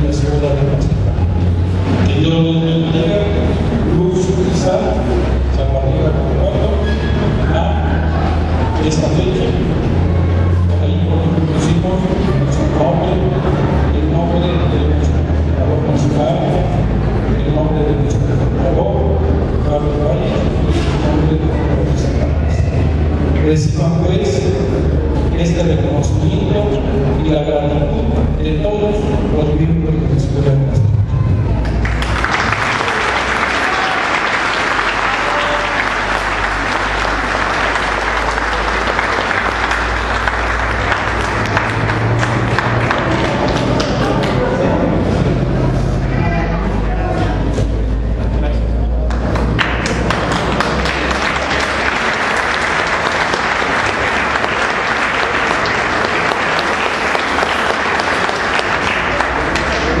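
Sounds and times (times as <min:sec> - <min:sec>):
audience applause: 0:31.5 - 0:45.0, 0:49.1 - 1:00.0.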